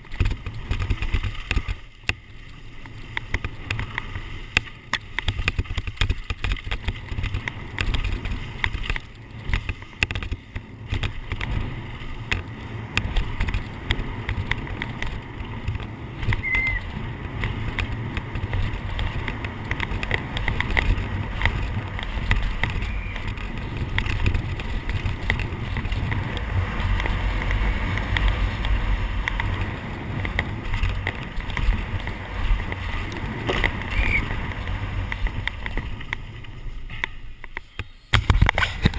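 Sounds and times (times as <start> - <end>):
bike clattering over bumps: 0.0 - 38.9
tyres on dirt: 0.0 - 38.9
wind rumbling on microphone: 0.0 - 38.9
brief squeaks: 16.4 - 16.9, 33.9 - 34.3.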